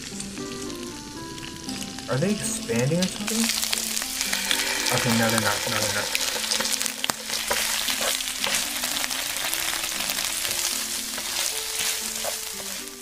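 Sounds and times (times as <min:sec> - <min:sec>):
fish sizzling in frying pan: 0:00.0 - 0:13.0
sauce pouring: 0:00.0 - 0:13.0
soft background music: 0:00.0 - 0:13.0
spatula stirring: 0:03.4 - 0:13.0.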